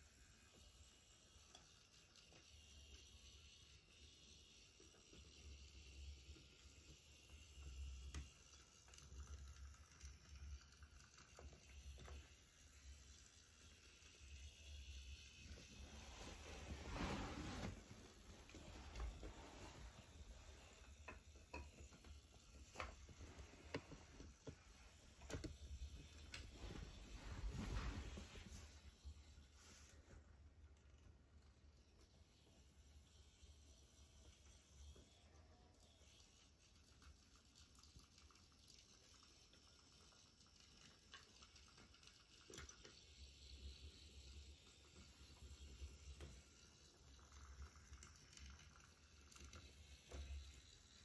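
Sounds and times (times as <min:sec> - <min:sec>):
toy train humming and ticking: 0:00.0 - 0:15.8, 0:31.2 - 0:51.0.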